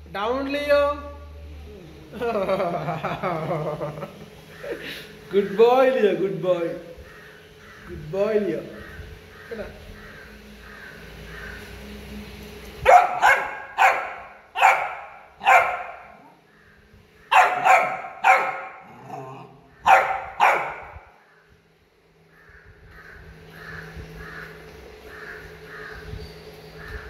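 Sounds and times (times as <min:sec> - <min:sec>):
puppy barking: 0:12.8 - 0:16.4, 0:17.3 - 0:21.0.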